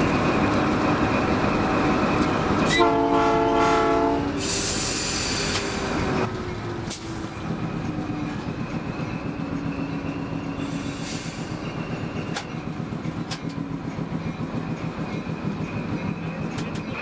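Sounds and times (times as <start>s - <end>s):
train rumbling on rails: 0.0s - 17.0s
wheel squeal: 8.6s - 12.7s.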